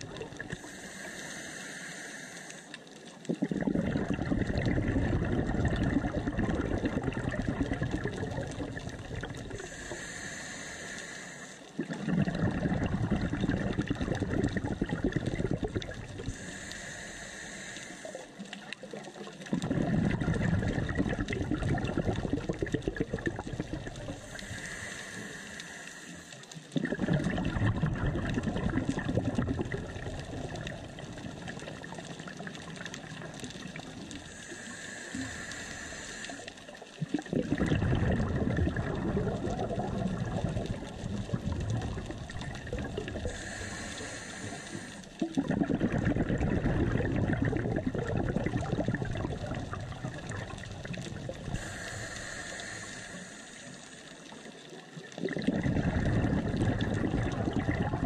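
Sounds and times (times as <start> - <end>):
exhaled bubbles gushing: 0.0 - 0.7, 3.1 - 10.0, 11.8 - 16.6, 18.1 - 24.7, 26.6 - 52.4, 54.2 - 58.0
regulator inhale hiss: 0.4 - 3.0, 9.5 - 11.9, 16.1 - 18.7, 23.9 - 26.8, 34.0 - 36.8, 42.8 - 45.2, 49.4 - 54.5.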